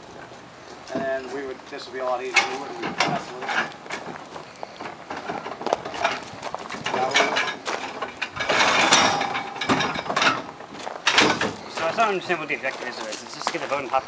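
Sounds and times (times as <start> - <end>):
metal scraping rattle: 1.1 - 14.0
metal frame knocks and clicks: 4.8 - 12.1.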